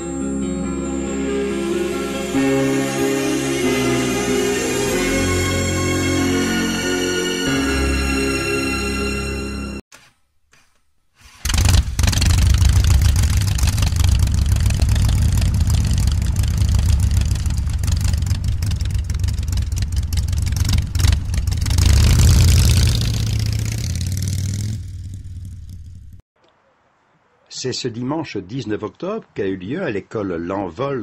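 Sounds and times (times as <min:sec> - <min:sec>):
vehicle engine starting and revving: 0:11.2 - 0:26.2.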